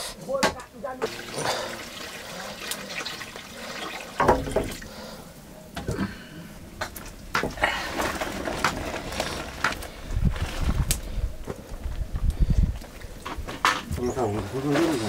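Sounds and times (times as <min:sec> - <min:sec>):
water pouring into wok: 0:01.1 - 0:05.1
metal knocks and clatters: 0:04.2 - 0:04.8.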